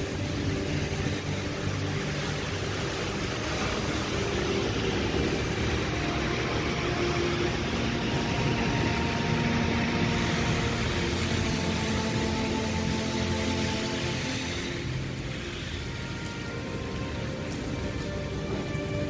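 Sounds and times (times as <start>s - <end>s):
heavy rain hissing: 0.0s - 19.0s
vehicles driving through water: 0.0s - 19.0s.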